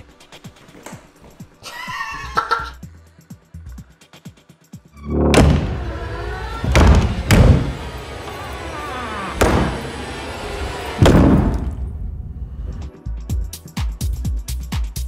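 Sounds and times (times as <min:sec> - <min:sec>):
heavy thuds: 0:05.1 - 0:08.4, 0:11.0 - 0:12.0.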